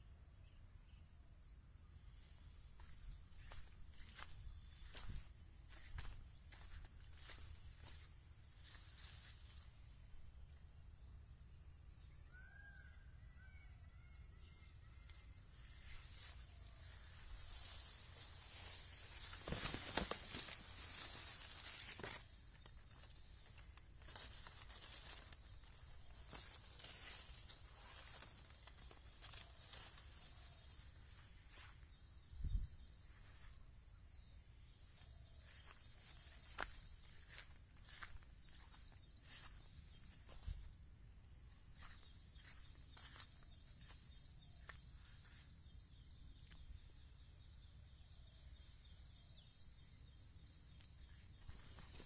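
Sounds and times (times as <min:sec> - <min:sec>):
high insect drone: 0:00.0 - 0:52.0
grass rustling against phone: 0:15.7 - 0:31.8, 0:35.4 - 0:40.8
wind rumble on microphone: 0:32.3 - 0:32.8.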